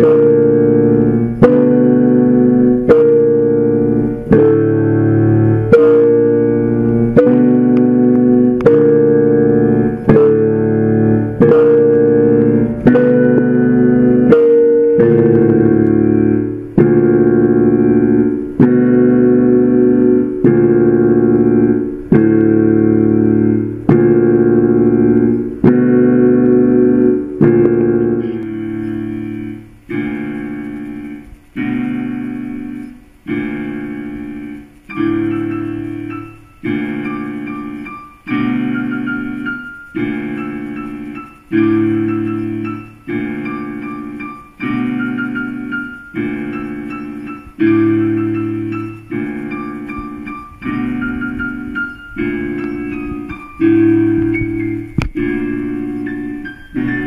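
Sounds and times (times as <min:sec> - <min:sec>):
piano playing slow chords: 0:00.0 - 0:57.0.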